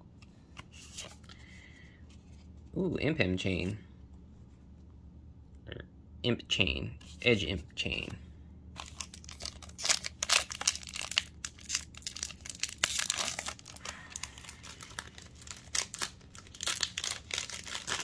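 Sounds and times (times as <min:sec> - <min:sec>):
foil wrapper crinkling and tearing: 0:08.8 - 0:18.0.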